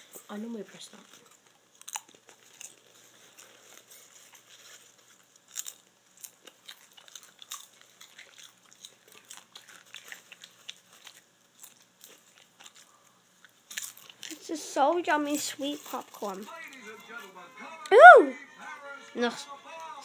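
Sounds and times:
person chewing popcorn: 0:00.0 - 0:14.4, 0:15.3 - 0:17.9.

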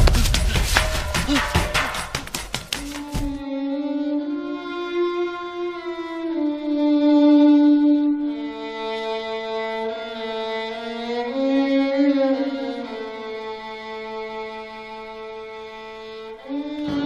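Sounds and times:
slow bowed string music: 0:03.3 - 0:17.0.

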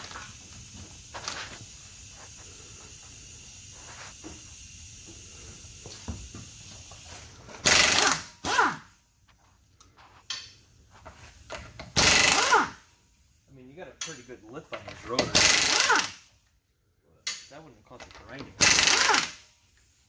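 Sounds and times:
air impact wrench bursts: 0:00.0 - 0:09.0, 0:11.2 - 0:13.3, 0:14.1 - 0:16.4, 0:18.1 - 0:20.0
low shop hiss: 0:00.0 - 0:20.0.

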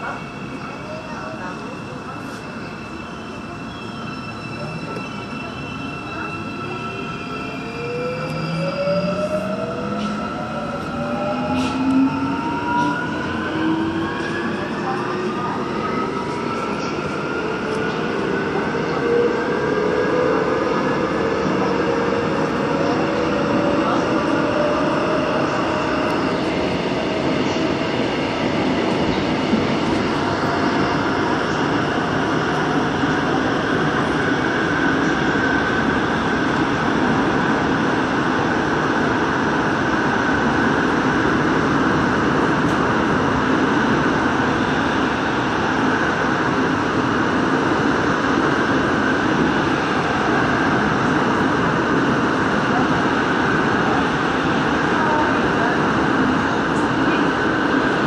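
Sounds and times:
train wheels rumbling on rail: 0:00.0 - 0:58.0.

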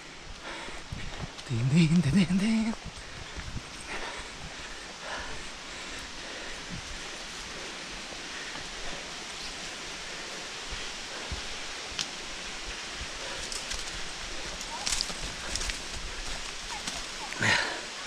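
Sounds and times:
footsteps on dirt path: 0:00.0 - 0:18.0.

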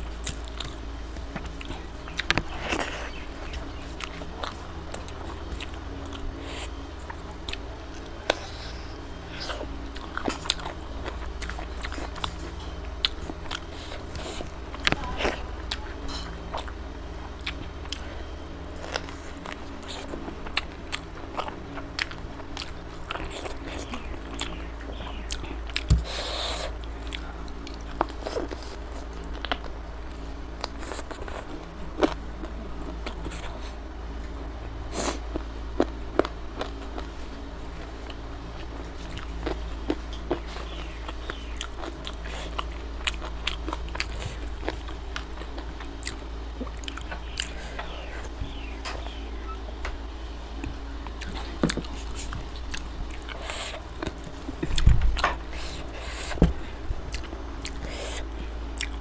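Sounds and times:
steady low hum: 0:00.0 - 0:59.0
wet chewing and mouth smacks: 0:38.0 - 0:48.3, 0:57.1 - 0:59.0.

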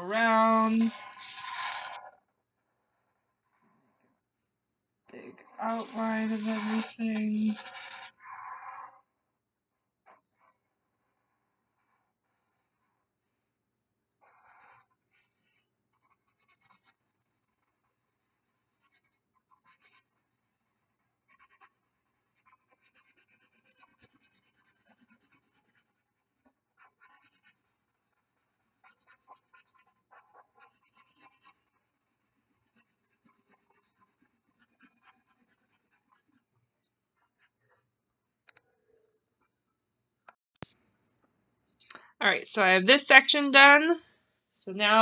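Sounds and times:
marker scratching on paper: 0:00.2 - 0:02.1, 0:05.4 - 0:09.0, 0:14.2 - 0:36.5.

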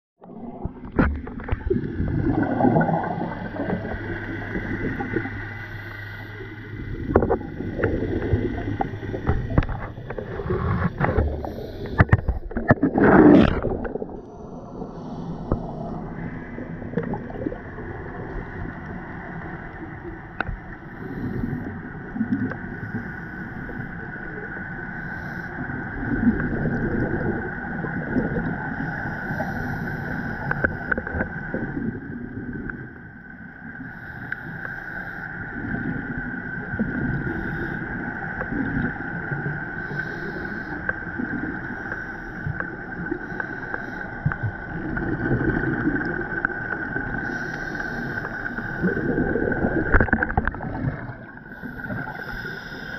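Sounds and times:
scuba exhalation bubbles gurgling: 0:00.2 - 0:05.4, 0:06.8 - 0:19.0, 0:25.6 - 0:29.7, 0:42.5 - 0:52.9
boat engines hum underwater: 0:00.2 - 0:52.9.

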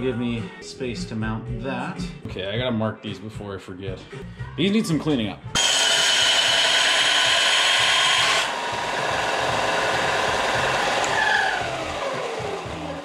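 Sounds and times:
belt sander grinding steel: 0:05.6 - 0:13.0
sander motor spinning down: 0:05.6 - 0:13.0.

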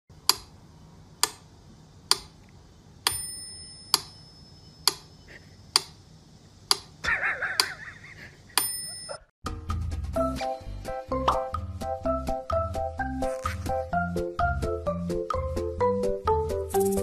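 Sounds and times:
metronome bell ringing: 0:03.1 - 0:04.8, 0:08.6 - 0:09.3
metronome ticking: 0:12.3 - 0:12.8.

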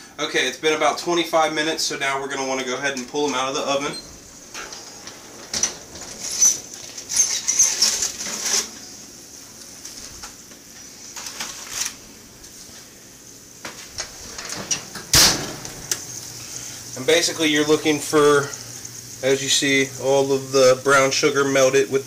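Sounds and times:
oven rack sliding out: 0:02.6 - 0:09.0, 0:13.9 - 0:17.8
foil pan rattling and scraping: 0:05.5 - 0:08.8.

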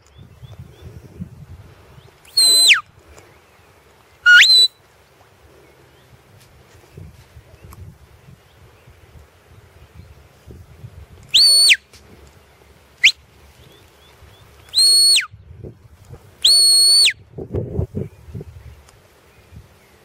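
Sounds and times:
shepherd's whistle blasts: 0:02.3 - 0:02.8, 0:04.3 - 0:04.8, 0:11.3 - 0:11.9, 0:14.7 - 0:15.3, 0:16.4 - 0:17.2.

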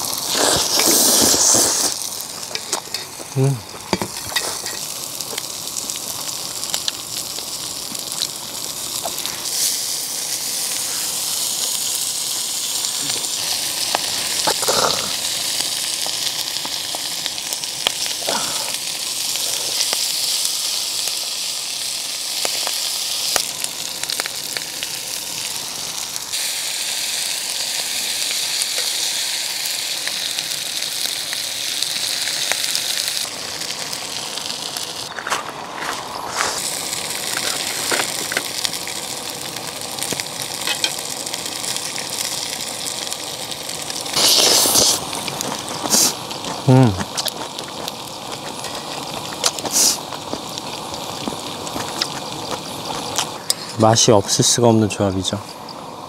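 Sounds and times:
meat sizzling: 0:00.0 - 0:56.0
utensil clinks and scrapes: 0:04.0 - 0:04.8.

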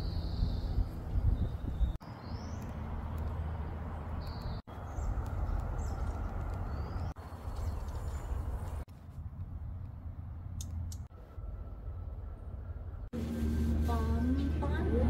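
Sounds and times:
wind noise on microphone: 0:00.0 - 0:02.0
birds chirping: 0:00.0 - 0:08.9.

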